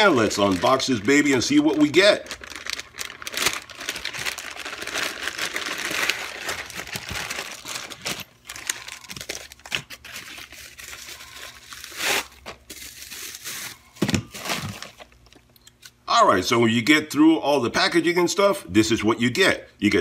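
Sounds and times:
plastic packaging crinkling: 0.0s - 15.5s.

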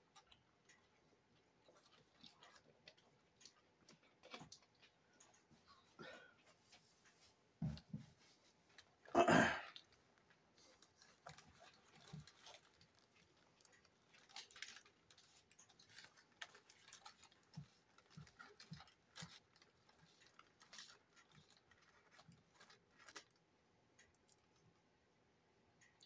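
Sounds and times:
chewing and mouth clicks: 0.1s - 5.8s, 9.7s - 23.4s, 24.0s - 24.6s.

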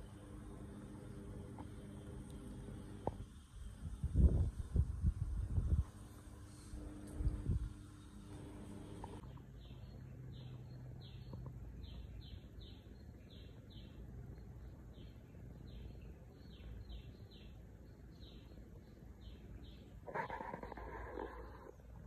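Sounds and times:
low steady rumble: 0.0s - 12.4s
small bird chirping: 7.0s - 22.0s.

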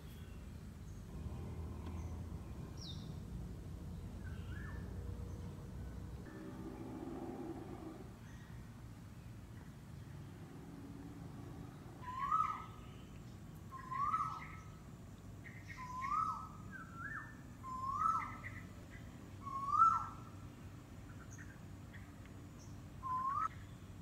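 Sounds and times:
bird calling: 11.8s - 14.7s, 23.0s - 23.6s.

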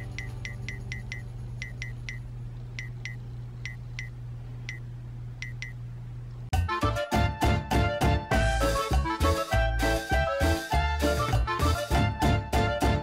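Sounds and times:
steady low hum: 0.0s - 6.5s
upbeat music: 6.5s - 13.0s.

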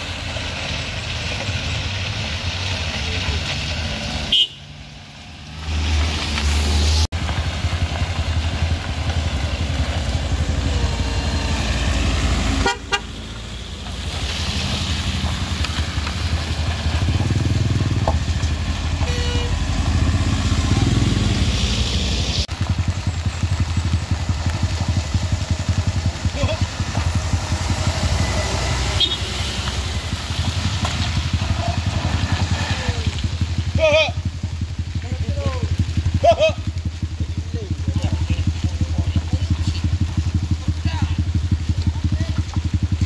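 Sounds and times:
truck engines rumbling uphill: 0.0s - 43.0s
short horn toots: 4.3s - 4.7s, 19.0s - 19.6s, 28.9s - 29.5s.

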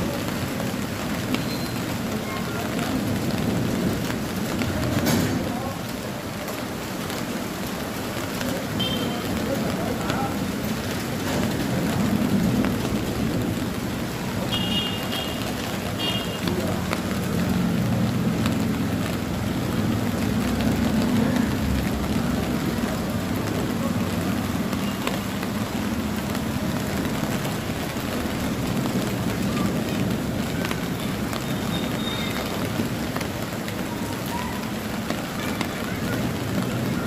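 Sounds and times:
steady rain falling: 0.0s - 37.0s.

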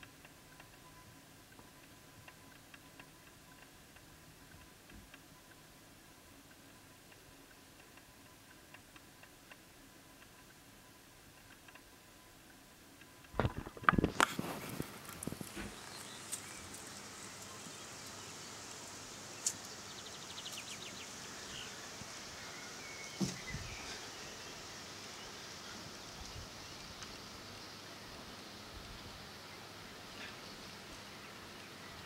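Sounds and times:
rapid trill of ticks: 0.0s - 22.8s
outdoor background noise: 0.0s - 32.0s
sharp knocks and scuffs: 23.2s - 23.7s.

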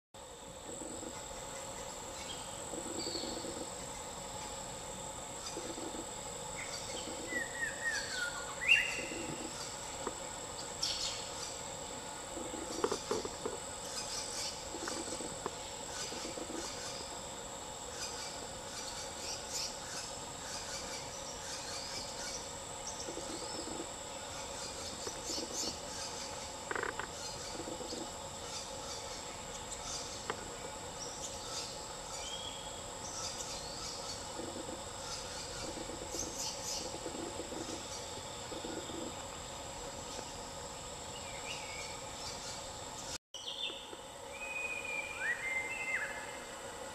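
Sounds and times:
insects droning: 0.2s - 46.9s
bird calls: 6.6s - 9.8s.

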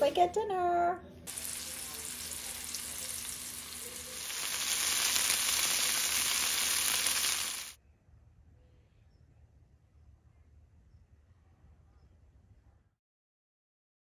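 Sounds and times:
chicken sizzling in hot oil: 1.3s - 7.8s.

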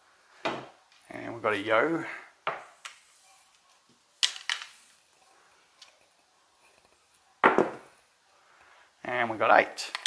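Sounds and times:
hard objects clacking on table: 4.2s - 4.8s, 6.6s - 7.9s.

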